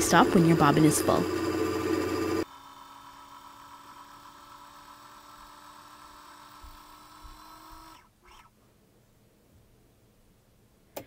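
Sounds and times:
sewing machine motor hum: 0:00.0 - 0:08.5.

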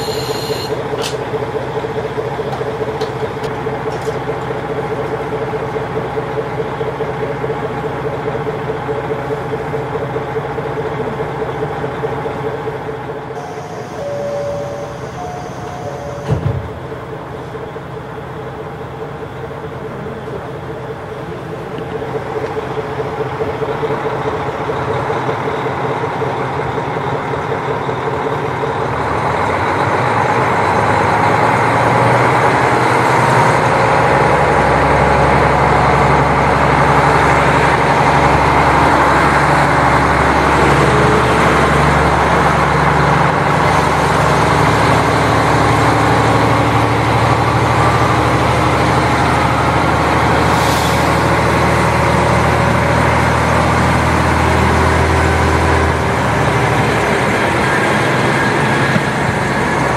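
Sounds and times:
diesel railcar engine droning: 0:00.0 - 0:59.9
wheels rumbling on rails: 0:00.0 - 0:59.9.

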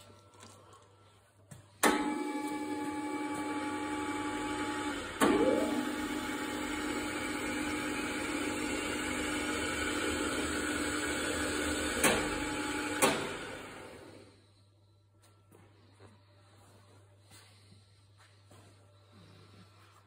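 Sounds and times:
lathe running with mechanical hum: 0:01.8 - 0:14.3.

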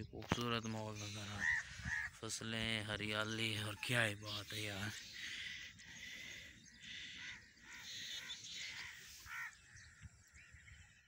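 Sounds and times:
crows cawing: 0:01.0 - 0:02.6, 0:03.6 - 0:10.6.

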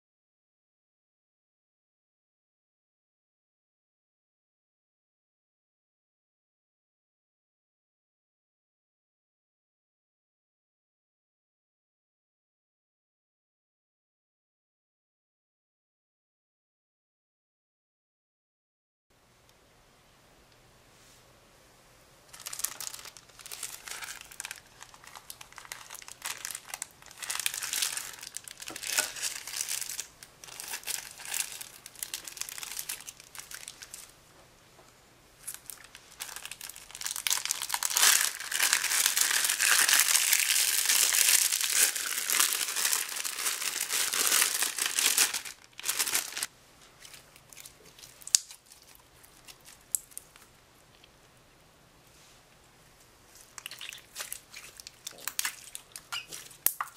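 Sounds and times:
slime squishing in hands: 0:22.3 - 0:34.0, 0:35.4 - 0:50.5, 0:53.3 - 0:56.9
plastic bag crinkling: 0:22.3 - 0:34.1, 0:35.4 - 0:50.4, 0:53.4 - 0:56.9.

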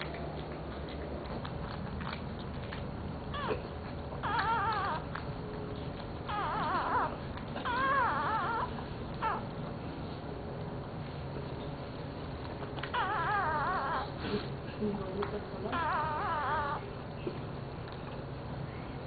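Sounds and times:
puppy crying: 0:03.2 - 0:09.6, 0:12.8 - 0:14.4, 0:15.6 - 0:17.0.

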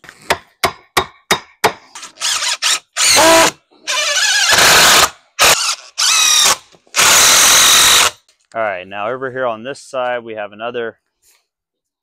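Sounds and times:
cordless drill driving screws: 0:02.0 - 0:08.2.

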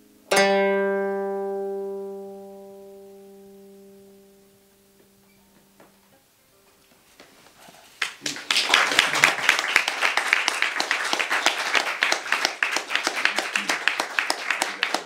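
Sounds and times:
people clapping: 0:07.9 - 0:15.0.

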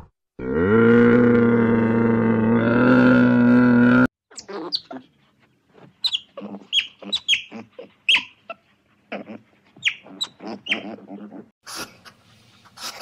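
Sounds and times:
otter chirping squeaks: 0:04.3 - 0:05.0, 0:06.0 - 0:08.6, 0:09.8 - 0:11.2.

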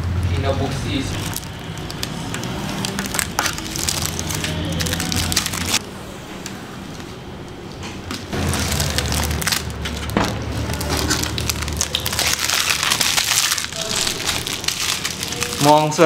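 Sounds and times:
packaging crinkling and crumpling: 0:01.0 - 0:05.8, 0:08.3 - 0:16.0.

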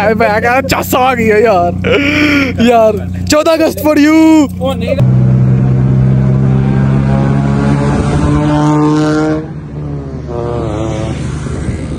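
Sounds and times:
car exhaust accelerating past: 0:05.0 - 0:11.9.

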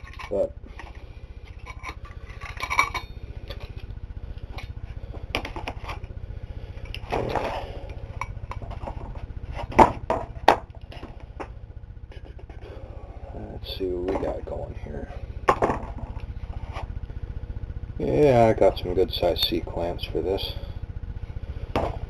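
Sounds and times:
metal parts clicking and clinking: 0:00.0 - 0:03.8
steady low hum: 0:00.0 - 0:22.0
parts knocking on workbench: 0:09.7 - 0:11.1, 0:15.5 - 0:16.1, 0:21.8 - 0:22.0.

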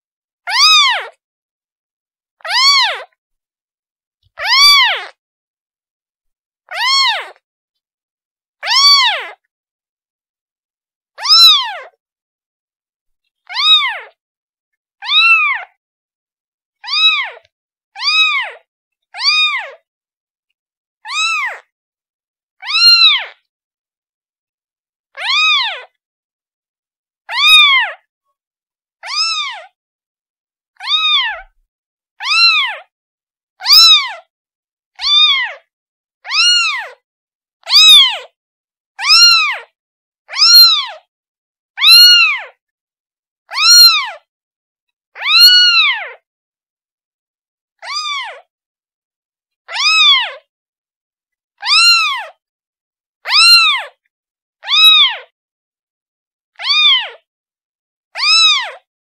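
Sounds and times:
kitten meowing: 0:00.5 - 0:01.2, 0:02.4 - 0:03.1, 0:04.4 - 0:05.2, 0:06.7 - 0:07.4, 0:08.6 - 0:09.4, 0:11.2 - 0:12.0, 0:13.5 - 0:14.2, 0:15.0 - 0:15.8, 0:16.8 - 0:18.6, 0:19.2 - 0:19.8, 0:21.1 - 0:21.7, 0:22.6 - 0:23.4, 0:25.2 - 0:25.9, 0:27.3 - 0:28.0, 0:29.0 - 0:29.8, 0:30.8 - 0:31.6, 0:32.2 - 0:32.9, 0:33.6 - 0:34.2, 0:35.0 - 0:35.6, 0:36.3 - 0:37.0, 0:37.6 - 0:38.3, 0:39.0 - 0:39.7, 0:40.3 - 0:41.0, 0:41.8 - 0:42.6, 0:43.5 - 0:44.3, 0:45.2 - 0:46.2, 0:47.8 - 0:48.5, 0:49.7 - 0:50.5, 0:51.6 - 0:52.4, 0:53.3 - 0:53.9, 0:54.6 - 0:55.3, 0:56.6 - 0:57.2, 0:58.2 - 0:58.8.

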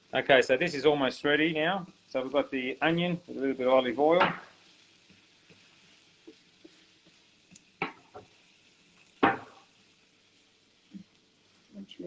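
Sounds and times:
onion sizzling in oil: 0:00.0 - 0:12.0
wooden spoon stirring: 0:04.1 - 0:10.1
spoon knocking on pan: 0:09.2 - 0:09.6.

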